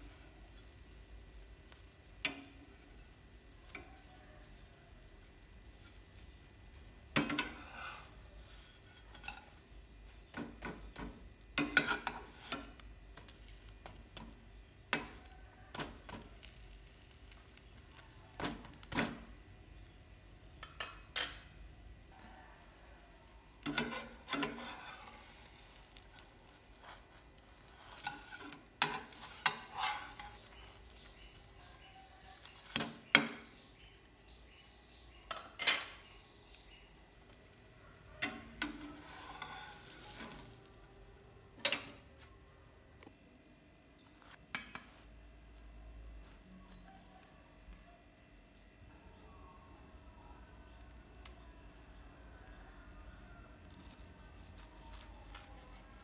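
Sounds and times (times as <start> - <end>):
sandwich sizzling in a pan: 0.0 - 42.9, 50.8 - 56.0
utensils knocking and scraping a pan: 7.1 - 16.6, 17.4 - 19.3, 20.6 - 21.6, 23.6 - 33.6, 38.2 - 40.5.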